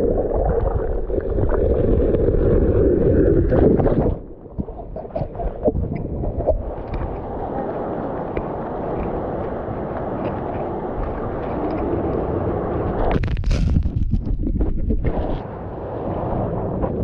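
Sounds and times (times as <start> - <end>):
surf washing around rocks: 0.0 - 17.0
sharp crackles and knocks: 3.6 - 7.3, 9.9 - 12.3, 12.9 - 15.4.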